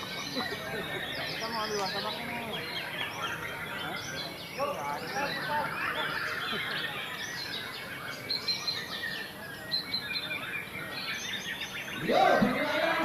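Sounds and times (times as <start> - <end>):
songbirds singing: 0.0 - 13.0
louder voice: 12.0 - 13.0.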